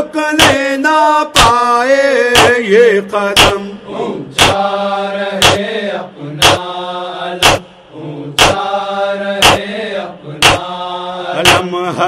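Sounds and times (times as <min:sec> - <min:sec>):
man chanting: 0:00.0 - 0:03.9, 0:11.3 - 0:12.0
sharp beat: 0:00.4 - 0:00.6, 0:01.4 - 0:01.7, 0:02.4 - 0:02.6, 0:03.4 - 0:03.7, 0:04.4 - 0:04.7, 0:05.4 - 0:05.7, 0:06.4 - 0:06.7, 0:07.4 - 0:07.8, 0:08.4 - 0:08.8, 0:09.4 - 0:09.7, 0:10.4 - 0:10.8, 0:11.4 - 0:11.8.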